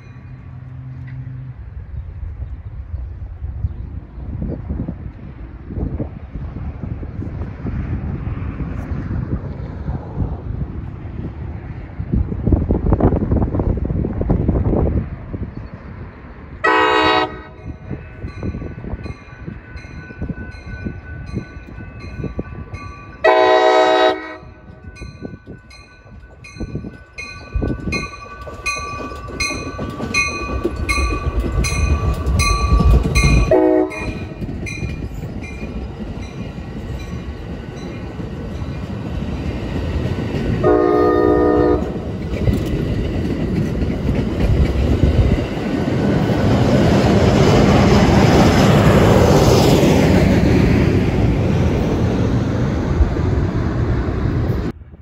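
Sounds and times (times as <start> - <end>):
train low rumble: 0.0 - 55.0
train air horn blasts: 16.6 - 17.6, 23.2 - 24.6, 33.4 - 34.4, 40.6 - 42.0.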